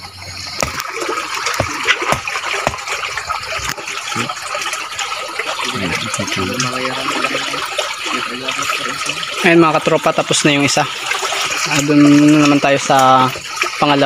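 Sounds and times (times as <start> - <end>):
stream running over rocks: 0.0 - 14.0
sharp knocks and clicks: 0.6 - 2.9.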